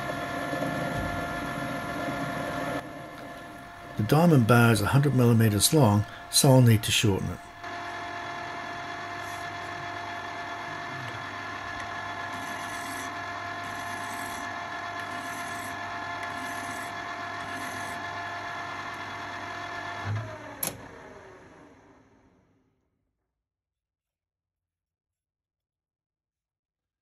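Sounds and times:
metal lathe motor hum: 0.0s - 22.2s
parting tool cutting metal bar: 8.4s - 18.1s.

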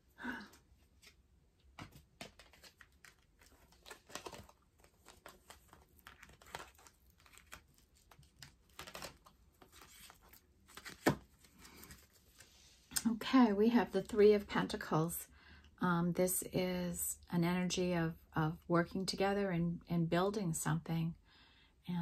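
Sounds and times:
cards rustling while shuffled: 0.8s - 12.8s.

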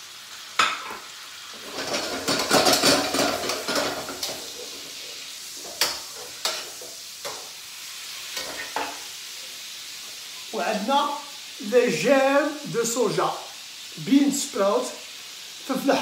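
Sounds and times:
chicken sizzling in a wok: 0.0s - 16.0s
metal utensil scraping wok: 0.6s - 9.2s.

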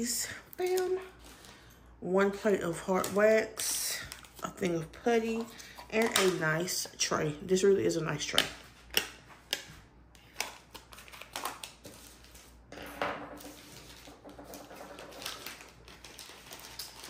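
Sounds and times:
plastic packaging rustling: 10.2s - 12.6s, 13.4s - 17.0s.

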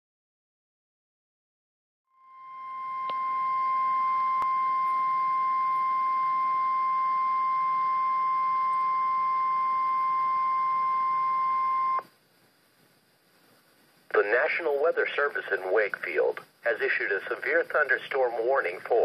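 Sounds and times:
high warning alarm tone: 2.1s - 12.0s
radio hiss: 12.0s - 19.0s.

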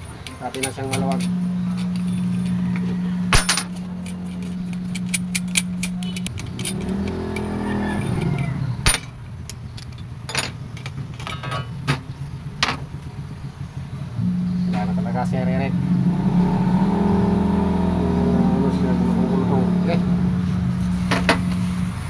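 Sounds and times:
metallic clicks and clinks: 0.0s - 11.8s
steady machine hum: 0.0s - 22.0s
wavering rising and falling sound: 0.7s - 9.0s, 14.1s - 22.0s.

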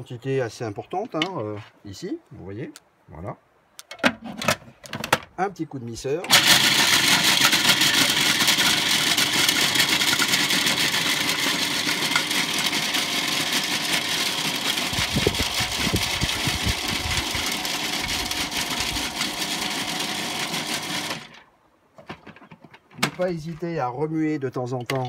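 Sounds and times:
food processor motor whir: 6.3s - 21.4s.

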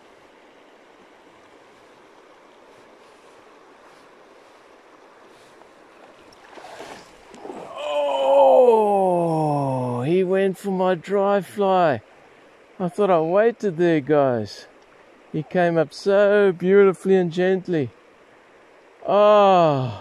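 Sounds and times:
river water running over gravel: 0.0s - 19.9s
fishing line swishing: 5.4s - 7.8s
man groaning: 7.7s - 10.0s, 19.2s - 20.0s.

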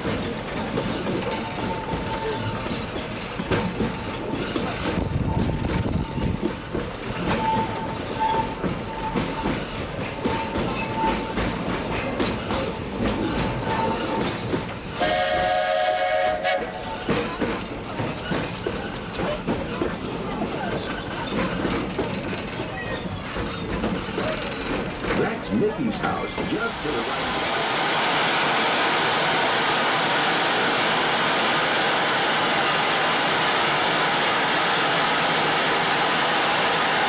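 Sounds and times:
wheels clacking over rail joints: 0.0s - 27.0s
steam train rumbling: 0.0s - 37.0s
steam whistle blowing: 15.0s - 16.9s.

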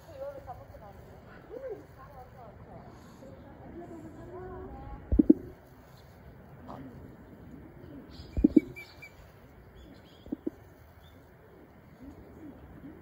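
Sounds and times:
small birds chirping: 7.3s - 13.0s
dove cooing: 8.3s - 8.8s, 10.2s - 10.6s.

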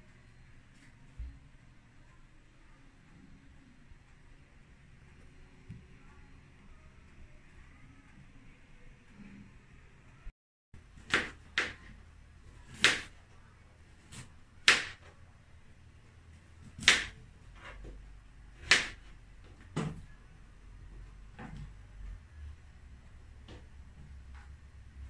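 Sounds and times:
knife chopping on cutting board: 11.0s - 11.9s, 12.7s - 13.1s, 14.1s - 15.0s, 16.7s - 17.2s, 18.6s - 19.0s.

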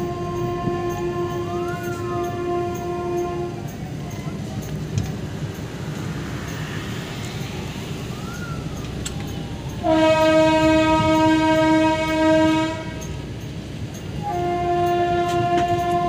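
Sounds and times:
train horn blast: 0.0s - 3.8s, 9.8s - 13.2s, 14.2s - 16.0s.

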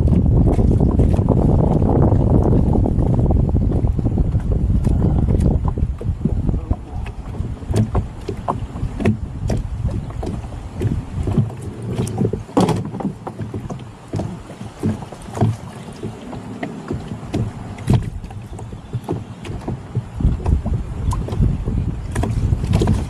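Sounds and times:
gear knocking in boat: 0.0s - 23.0s
wind rumble on microphone: 0.0s - 23.0s.

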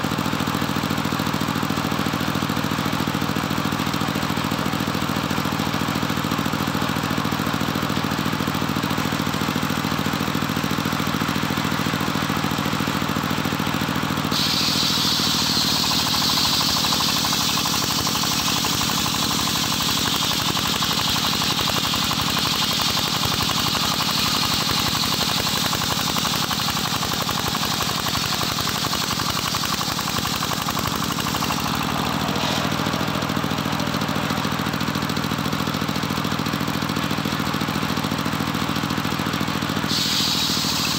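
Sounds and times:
sawmill engine running: 0.0s - 40.9s
saw blade cutting whine: 14.2s - 35.6s, 39.8s - 40.9s.

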